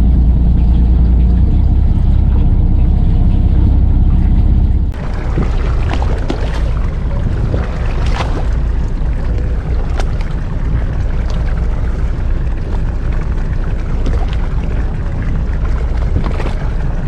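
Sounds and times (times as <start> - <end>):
boat engine idling: 0.0 - 17.0
water noise: 0.0 - 17.0
wind: 0.0 - 17.0.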